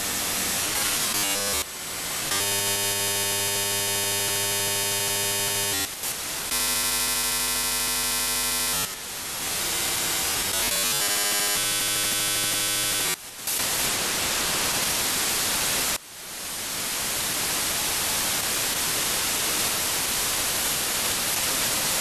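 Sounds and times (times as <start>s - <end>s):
buzzing data tones: 2.3s - 5.9s.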